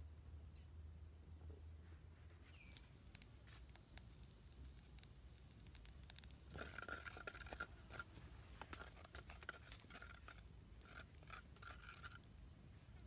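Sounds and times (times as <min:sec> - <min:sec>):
spatula scraping in a pan: 0:05.7 - 0:12.3.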